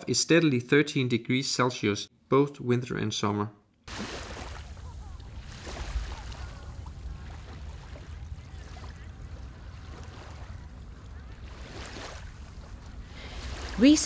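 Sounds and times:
small waves lapping: 3.9 - 14.0
faint distant voices: 4.6 - 12.0
wind rumbling on microphone: 4.6 - 14.0.

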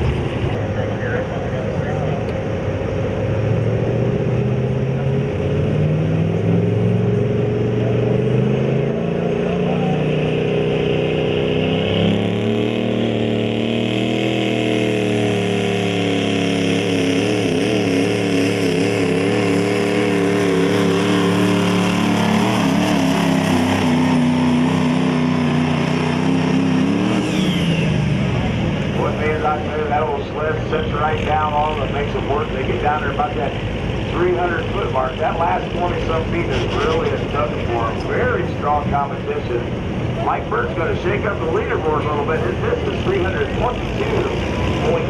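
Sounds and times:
diesel truck engine under load: 0.0 - 45.0.

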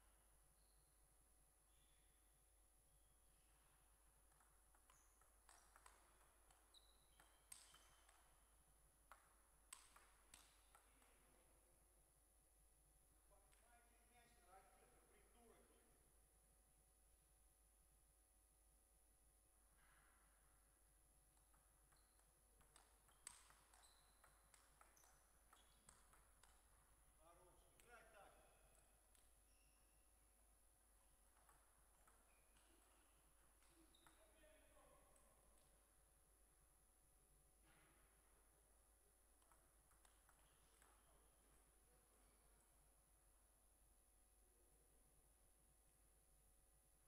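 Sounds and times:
table tennis ball clicking: 21.4 - 26.8.

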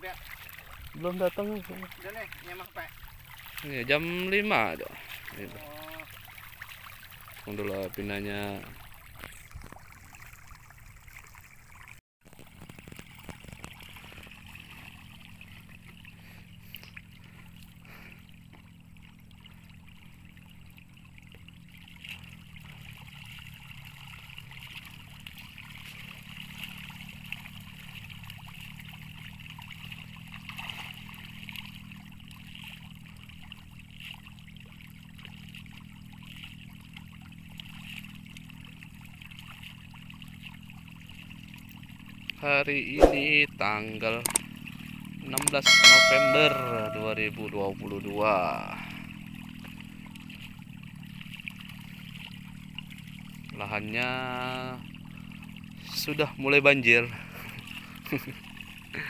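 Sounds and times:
low hum: 45.6 - 47.3.

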